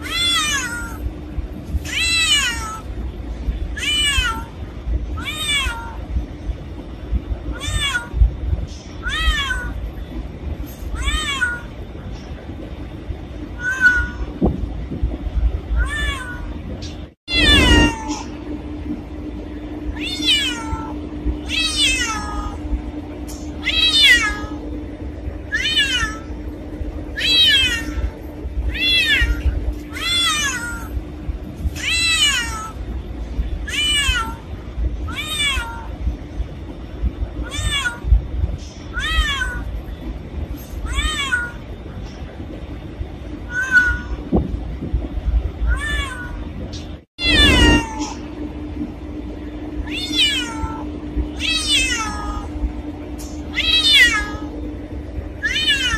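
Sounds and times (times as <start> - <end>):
cat meowing: 0.0 - 1.0, 1.8 - 2.9, 3.8 - 4.5, 5.2 - 6.0, 7.5 - 8.2, 9.0 - 9.8, 10.9 - 11.7, 13.6 - 14.3, 15.8 - 16.5, 17.3 - 18.3, 35.1 - 35.9, 37.4 - 38.1, 38.9 - 39.7, 40.8 - 41.6, 43.5 - 44.2, 45.7 - 46.4, 47.2 - 48.2, 49.8 - 52.5, 53.5 - 54.5, 55.4 - 55.9.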